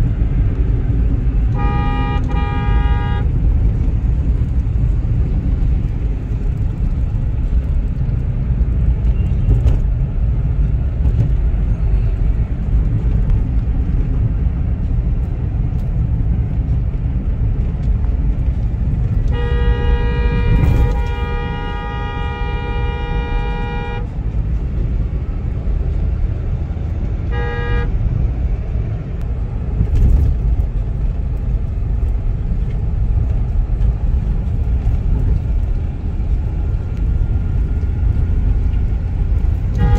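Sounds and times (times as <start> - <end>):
car cabin road rumble: 0.0 - 39.9
vehicle horn honking: 1.5 - 3.3, 19.3 - 24.1, 27.3 - 27.9.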